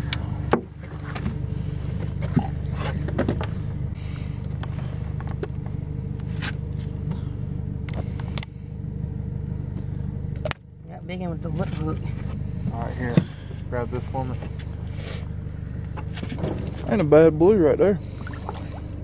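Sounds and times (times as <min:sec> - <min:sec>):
outboard motor idling: 0:00.0 - 0:19.0
knocks and clatter in boat: 0:00.5 - 0:01.4, 0:02.0 - 0:03.6, 0:16.0 - 0:17.2.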